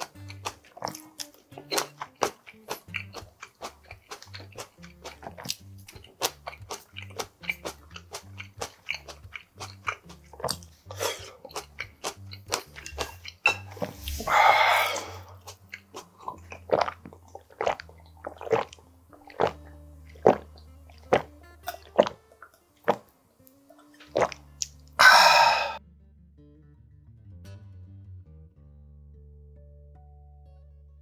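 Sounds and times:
lip smacks and clicks: 0:00.0 - 0:14.3, 0:15.3 - 0:25.0
swallowing gulps: 0:00.1 - 0:23.1, 0:24.0 - 0:25.8
loud slurp: 0:01.6 - 0:22.2, 0:24.0 - 0:25.8
breathy exhale: 0:14.0 - 0:15.3, 0:25.0 - 0:25.8.

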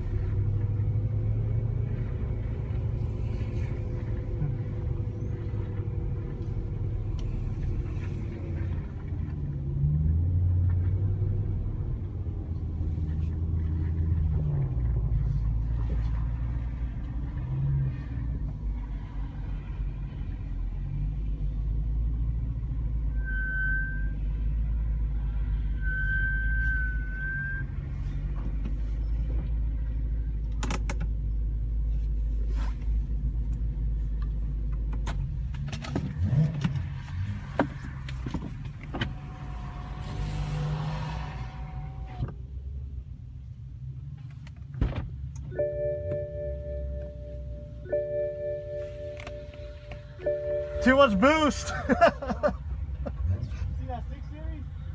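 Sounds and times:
car engine running at low revs: 0:00.0 - 0:54.9
short high squeals: 0:23.1 - 0:24.2.

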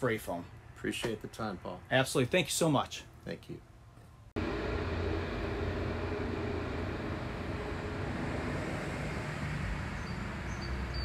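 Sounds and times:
low rumble: 0:04.4 - 0:10.5.

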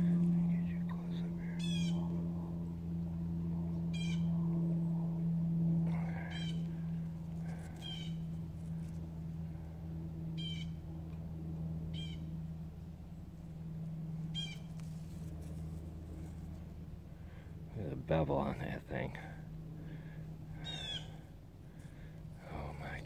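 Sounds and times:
low hum: 0:00.0 - 0:23.0
animal high calls: 0:20.6 - 0:21.2.

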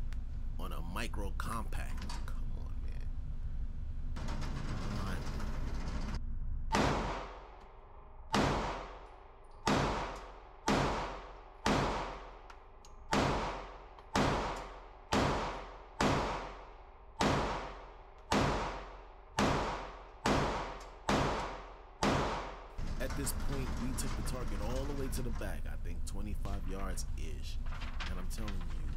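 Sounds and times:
pistol shots indoors: 0:06.7 - 0:22.7.

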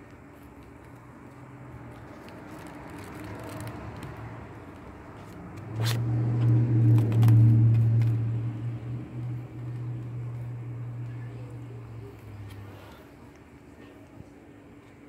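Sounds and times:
motor-like hum: 0:03.8 - 0:14.4.

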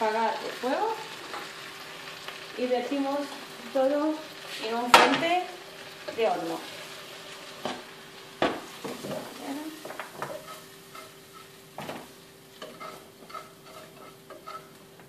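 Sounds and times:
vegetables sizzling: 0:00.0 - 0:15.0
spoon knocking and scraping pot: 0:12.6 - 0:14.8.

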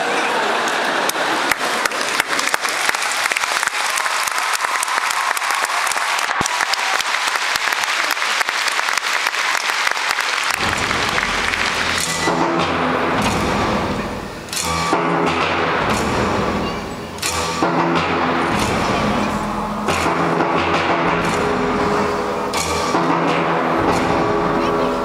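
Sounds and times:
audience clapping: 0:00.4 - 0:14.0
deep low rumbling: 0:10.6 - 0:12.0.

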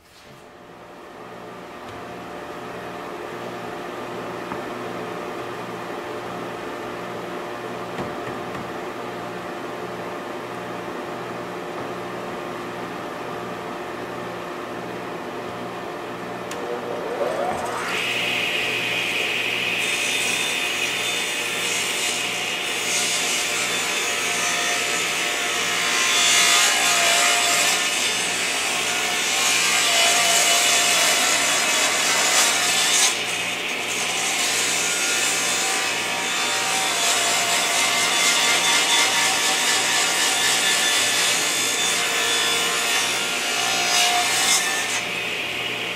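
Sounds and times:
saw motor whine: 0:16.5 - 0:19.7
saw cutting wood: 0:16.5 - 0:45.9.

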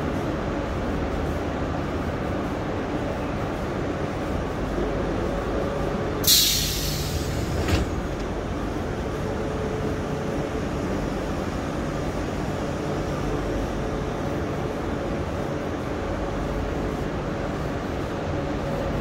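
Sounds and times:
city traffic rumble: 0:00.0 - 0:19.0
sudden loud hiss: 0:06.2 - 0:07.9.

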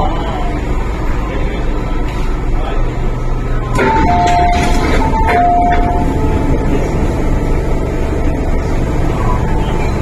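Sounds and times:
train humming at platform: 0:00.0 - 0:10.0
two-tone door warning chime: 0:03.6 - 0:10.0.

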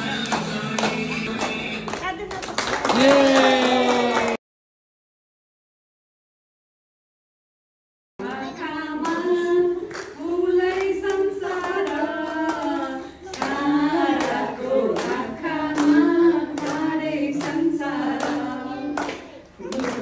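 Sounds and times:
two women singing: 0:08.2 - 0:20.0.

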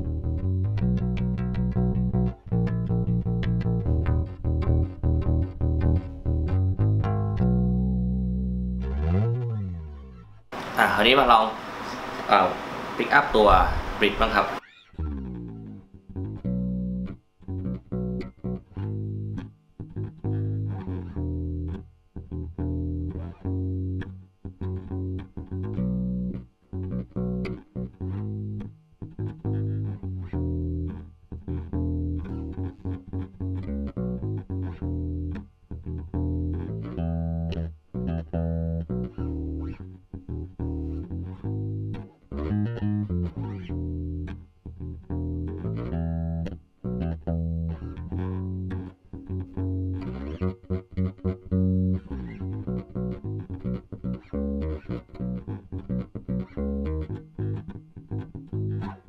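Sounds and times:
plucked electric bass notes: 0:00.0 - 0:11.4, 0:13.4 - 0:59.0.

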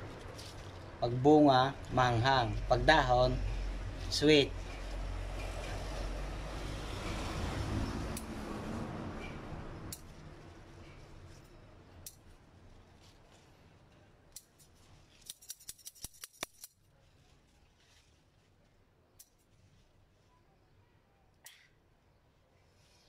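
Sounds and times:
plant leaves rustling: 0:00.0 - 0:07.3, 0:09.8 - 0:20.3
scissors snipping: 0:14.3 - 0:16.8
sharp clicks: 0:15.2 - 0:16.8.

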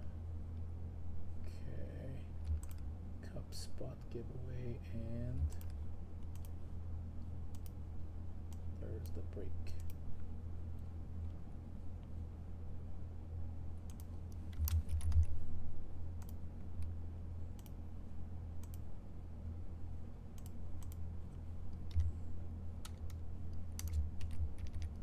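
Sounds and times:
steady low hum: 0:00.0 - 0:25.0
keyboard keys clicking: 0:02.4 - 0:02.8, 0:13.9 - 0:15.4, 0:22.8 - 0:25.0.

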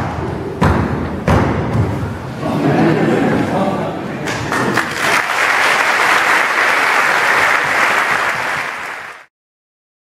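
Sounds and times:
audience applauding: 0:04.5 - 0:09.3.

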